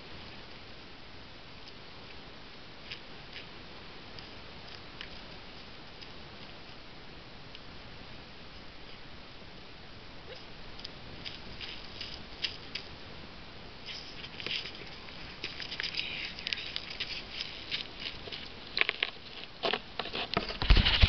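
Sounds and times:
footsteps crunching on icy snow: 11.2 - 12.9, 14.0 - 19.8.

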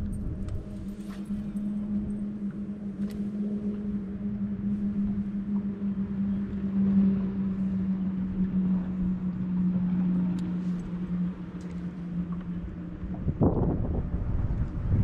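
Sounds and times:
boat motor humming: 0.0 - 15.0
water noise: 0.0 - 15.0
wind: 0.0 - 15.0.

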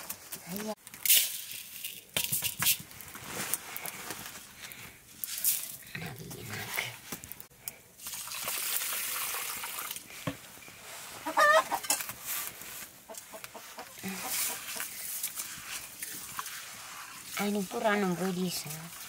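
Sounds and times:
rice poured into metal pot: 1.0 - 2.8
water pouring onto rice: 8.0 - 10.1
chicken clucking: 11.2 - 11.9, 13.1 - 14.8.

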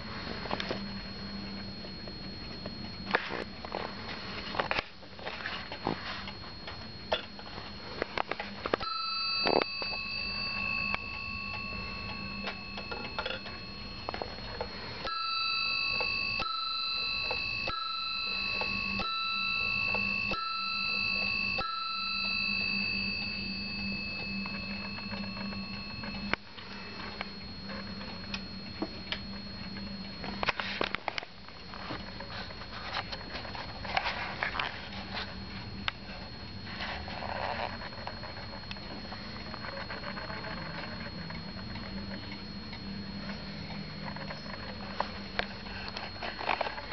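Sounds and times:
clock bell striking: 8.8 - 30.8.

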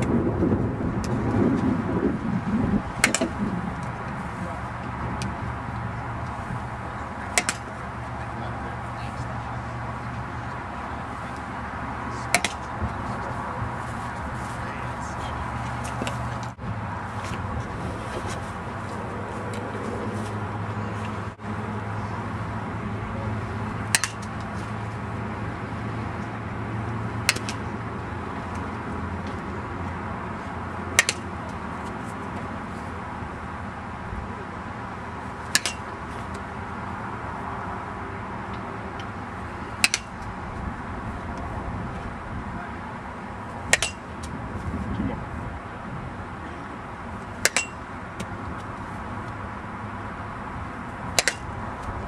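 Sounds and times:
low hum: 0.0 - 52.0
bat hitting ball: 3.0 - 3.4, 7.3 - 7.7, 12.2 - 12.7, 23.9 - 24.3, 27.2 - 27.6, 31.0 - 31.2, 35.5 - 35.9, 39.8 - 40.3, 43.7 - 44.2, 47.4 - 48.3, 51.2 - 51.6.

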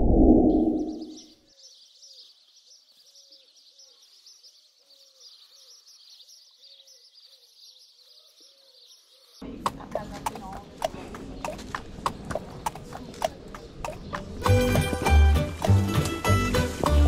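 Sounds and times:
loud low whoosh: 0.0 - 1.2
steady high chirring: 0.0 - 1.2
bird low hooting: 0.0 - 2.3.

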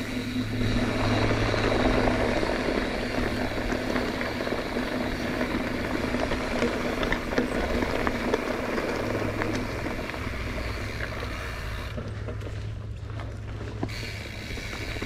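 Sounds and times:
wind rushing over microphone: 0.0 - 10.6
bicycle tyre rumble: 0.0 - 15.0
bike clicks and rattles: 0.0 - 15.0.

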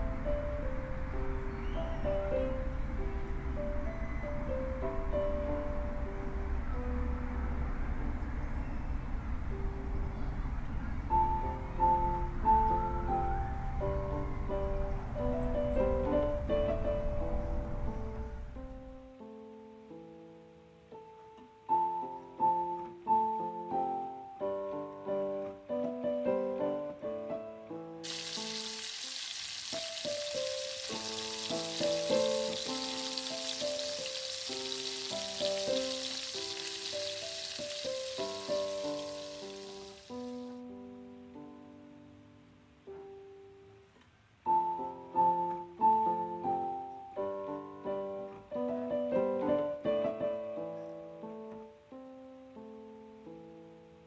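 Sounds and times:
gentle piano music: 0.0 - 54.0
potatoes sizzling in hot oil: 28.0 - 40.4
plucked and keyboard background music: 29.8 - 40.6.

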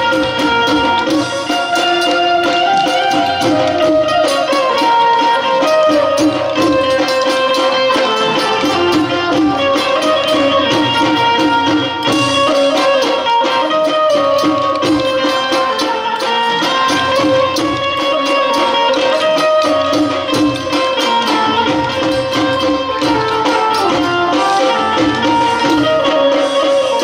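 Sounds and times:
folk music with drums: 0.0 - 27.0.

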